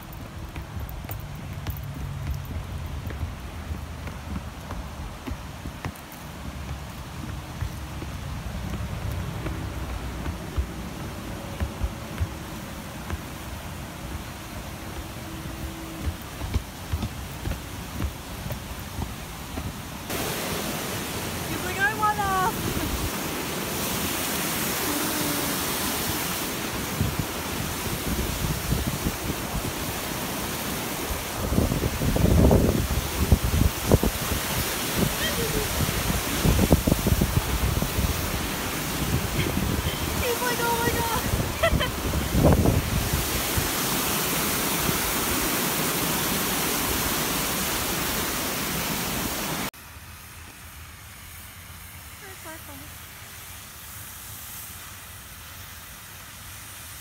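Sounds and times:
stream rushing over rocks: 0.0s - 50.1s
faint outdoor hiss: 0.0s - 57.0s
wind buffeting microphone: 26.1s - 44.0s.

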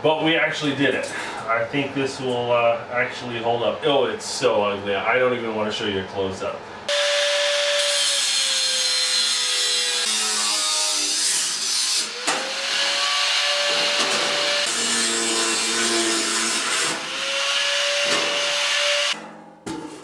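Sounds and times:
angle grinder on sheet steel: 6.9s - 19.2s.

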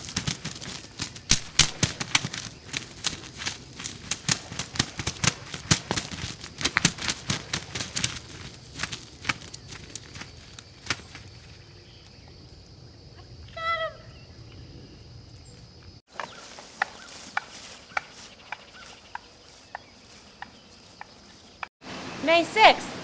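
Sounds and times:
wings beating on dry stubble: 0.0s - 11.5s, 16.1s - 20.6s.

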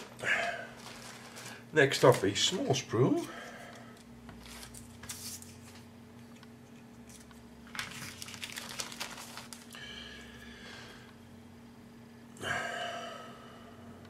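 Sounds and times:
plastic bag crinkling and tearing: 0.0s - 2.8s, 7.6s - 9.8s.

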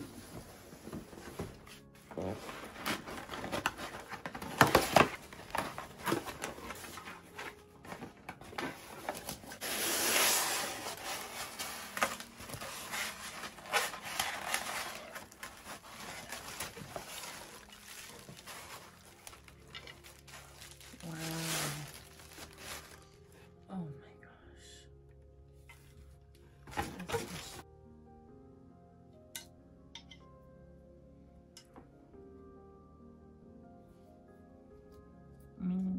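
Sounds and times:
styrofoam scraping out of box: 1.6s - 23.0s.

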